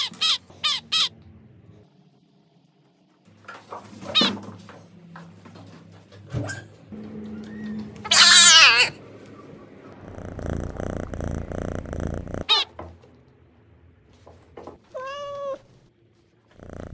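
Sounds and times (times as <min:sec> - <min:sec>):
cat meowing: 0:07.5 - 0:09.0, 0:10.1 - 0:12.7, 0:14.9 - 0:15.8
cat purring: 0:10.0 - 0:12.6, 0:16.5 - 0:16.9.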